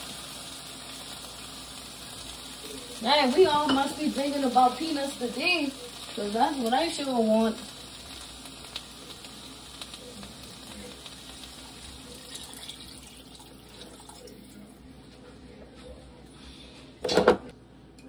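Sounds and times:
water splashing into pot: 11.0 - 14.6.

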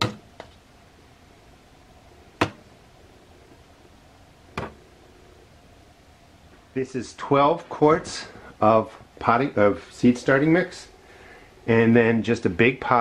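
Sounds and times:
sharp knocks: 2.4 - 2.6.

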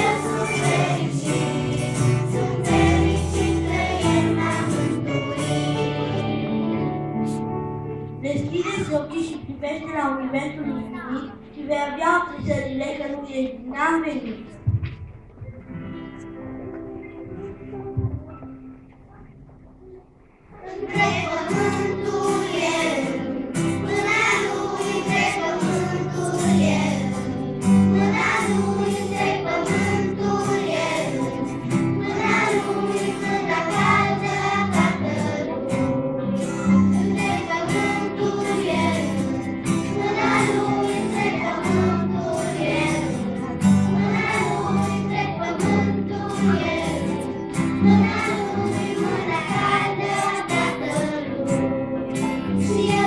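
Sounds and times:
children's choir singing: 0.0 - 7.5, 20.4 - 53.0
guitar accompaniment: 0.0 - 13.2, 14.2 - 53.0.

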